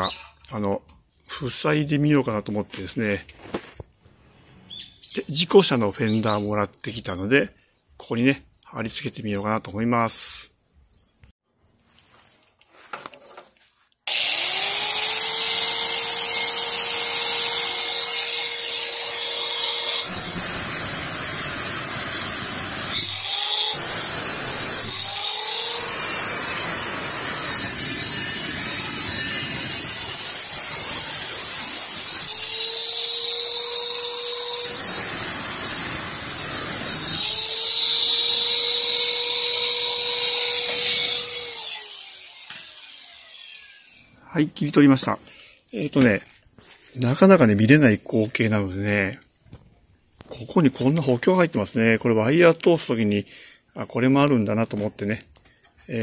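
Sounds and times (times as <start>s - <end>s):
angle grinder cutting metal: 14.1s - 44.2s.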